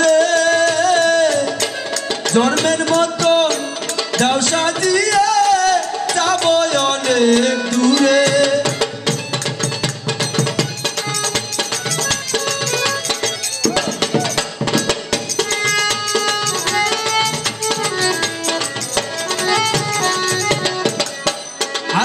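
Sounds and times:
man singing: 0.0s - 9.1s
fast steady percussion: 0.0s - 22.0s
instrumental accompaniment: 0.0s - 22.0s.

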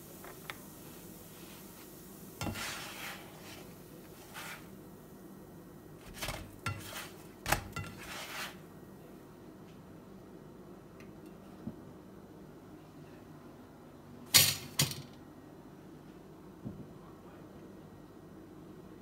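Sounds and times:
utensil scraping a frying pan: 2.4s - 4.8s, 6.0s - 8.7s.

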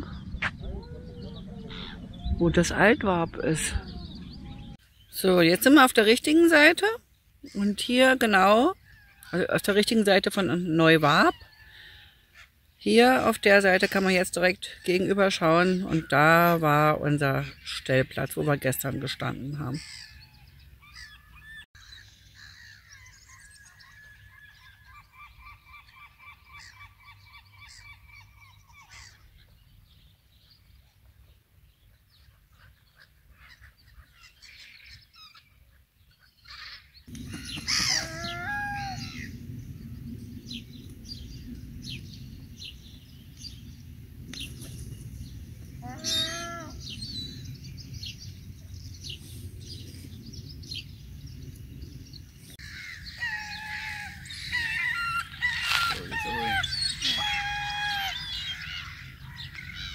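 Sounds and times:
gulls calling: 0.0s - 4.8s, 36.6s - 40.8s, 45.6s - 47.6s, 52.6s - 59.9s.

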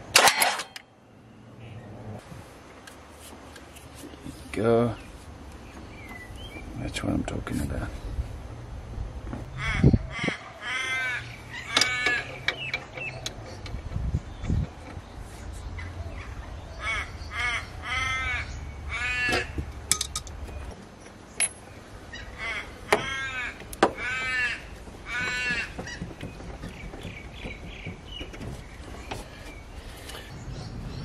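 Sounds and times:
crow cawing: 9.6s - 12.3s, 16.8s - 19.6s, 22.1s - 26.1s.

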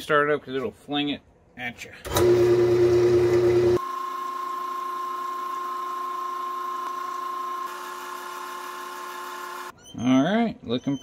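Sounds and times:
wood lathe motor whining: 2.1s - 9.7s.

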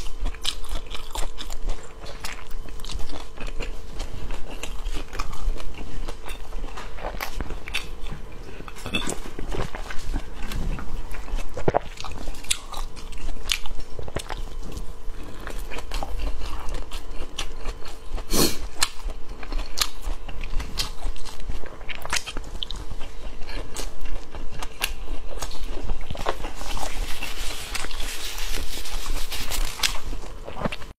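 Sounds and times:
person biting and chewing: 0.0s - 30.9s.

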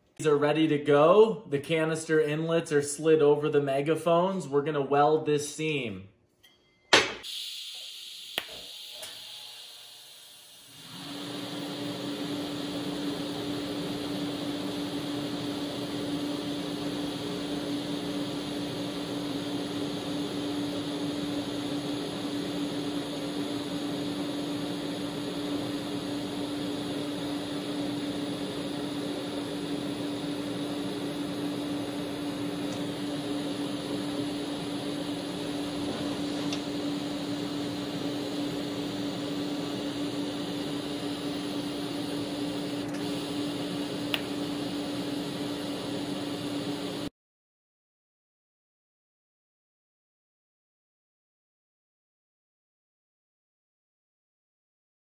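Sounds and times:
welding arc hissing and buzzing: 7.1s - 47.1s.

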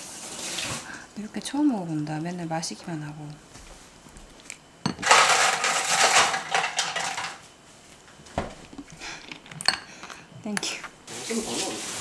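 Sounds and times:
ice cubes clattering: 5.0s - 7.4s.

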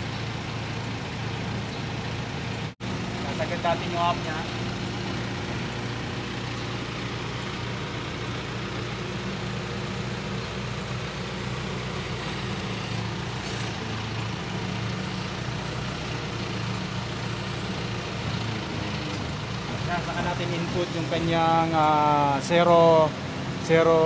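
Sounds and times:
truck engine running steadily: 0.0s - 24.0s.

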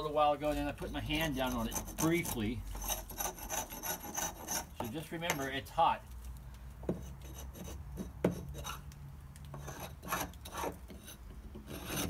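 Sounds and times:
paint scraper rasping on wood: 0.4s - 5.1s, 9.6s - 12.0s.

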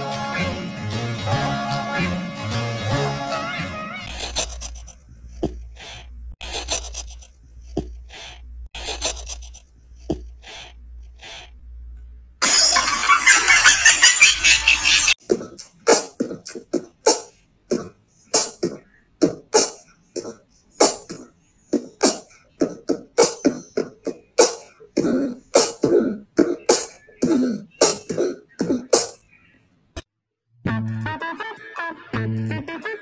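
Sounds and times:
cough-like bursts: 15.2s - 29.2s.

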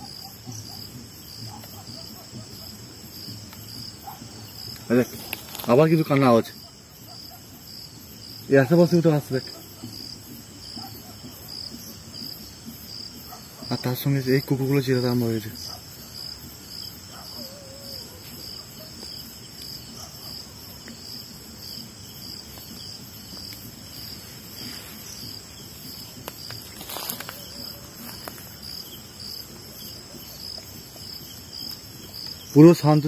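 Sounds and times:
crickets chirping: 0.0s - 33.0s.

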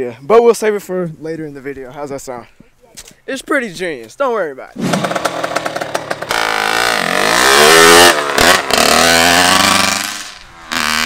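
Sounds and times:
dirt bike engine revving: 4.8s - 11.0s.

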